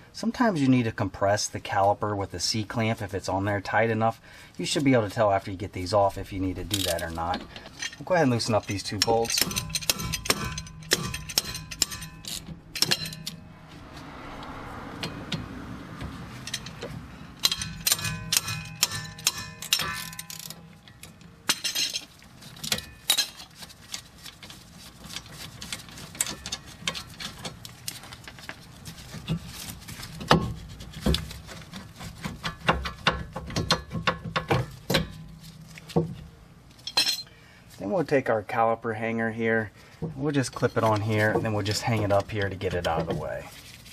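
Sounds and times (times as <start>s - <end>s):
metal tools clinking: 6.5s - 13.5s, 16.3s - 28.4s, 36.7s - 37.3s, 40.4s - 43.2s
hand ratchet clicking: 8.8s - 13.4s, 16.4s - 20.6s.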